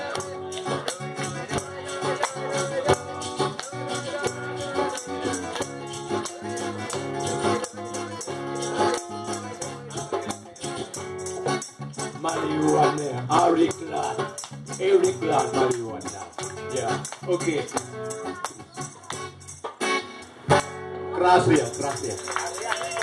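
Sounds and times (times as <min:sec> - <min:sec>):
person singing: 0:00.0 - 0:10.8
sharp percussive strokes: 0:00.0 - 0:20.8
acoustic guitar strumming: 0:00.0 - 0:23.0.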